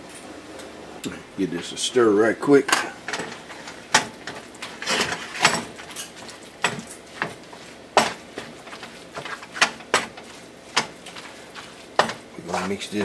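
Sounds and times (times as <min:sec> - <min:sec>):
wooden spatula scraping a pan: 0:03.1 - 0:13.0.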